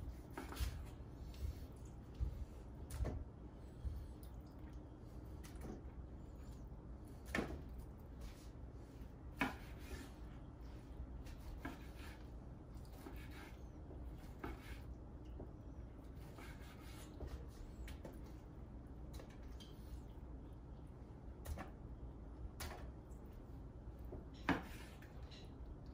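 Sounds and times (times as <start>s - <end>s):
knife cutting on wooden board: 9.4s - 10.2s, 11.2s - 12.2s, 16.2s - 17.2s.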